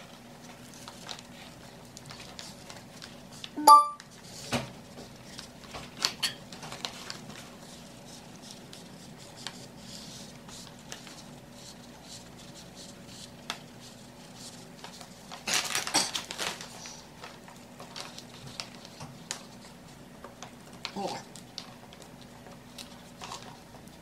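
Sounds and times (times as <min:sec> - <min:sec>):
plastic sheeting crinkling: 0:14.6 - 0:19.8.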